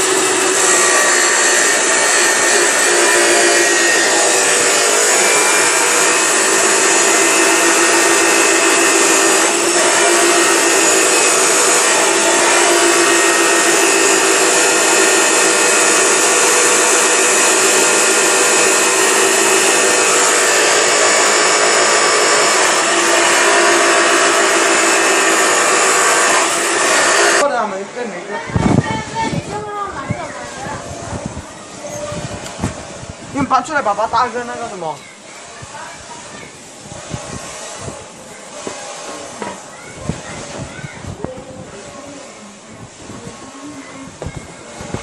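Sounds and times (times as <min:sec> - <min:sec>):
small motor whirring: 0:00.0 - 0:27.4.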